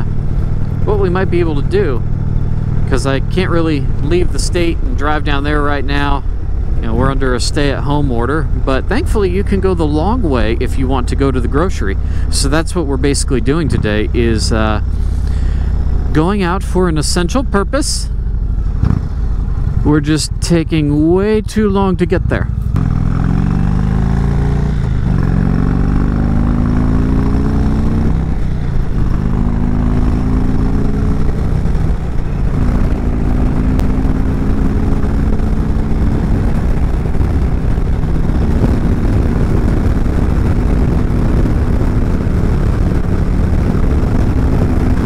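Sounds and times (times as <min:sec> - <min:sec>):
motorcycle engine accelerating: 0:00.0 - 0:45.0
wind noise: 0:22.3 - 0:45.0.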